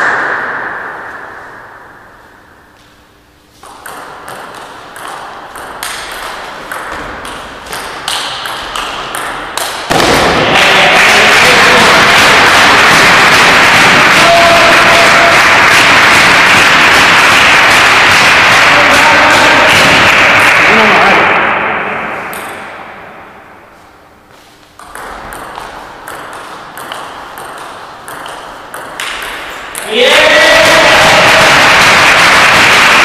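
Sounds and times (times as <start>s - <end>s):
loud steady rushing noise: 0.0s - 2.7s, 8.8s - 23.6s
table tennis ball hits: 3.6s - 23.4s, 24.8s - 33.0s.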